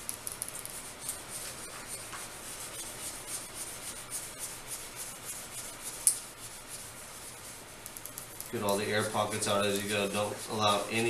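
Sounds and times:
squeegee rubbing screen protector: 0.6s - 8.2s.

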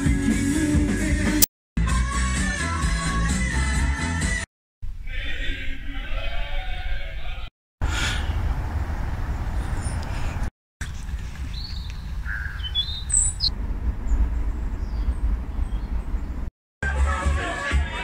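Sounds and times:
wind rumble on microphone: 8.1s - 16.5s
high bird chirps: 11.5s - 16.5s.

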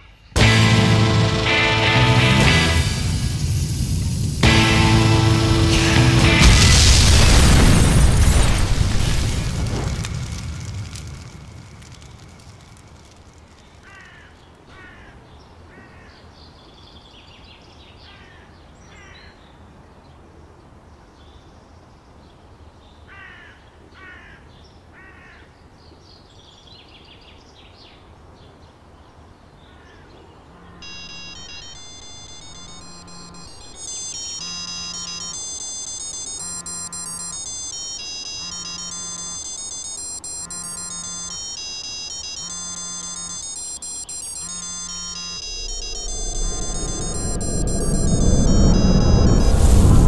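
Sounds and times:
smartphone ringtone melody: 30.8s - 50.0s.

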